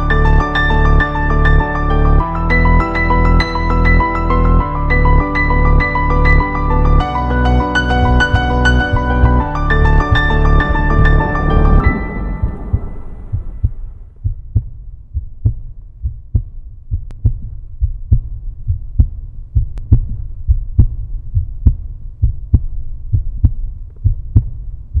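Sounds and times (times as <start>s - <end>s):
piano music: 0.0s - 14.0s
slow heartbeat thumps: 8.0s - 25.0s.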